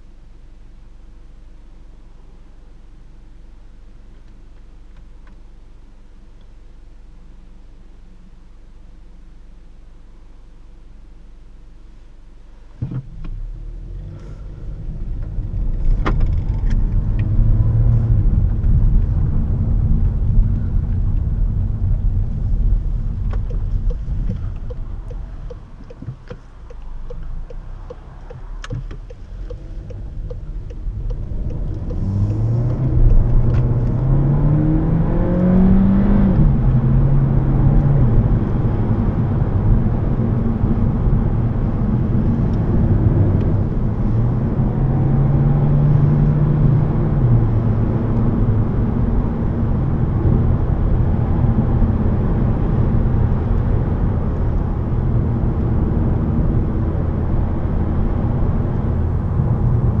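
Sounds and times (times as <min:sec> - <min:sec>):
car engine accelerating through gears: 0:12.8 - 1:00.0
tyre and road noise: 0:12.8 - 1:00.0.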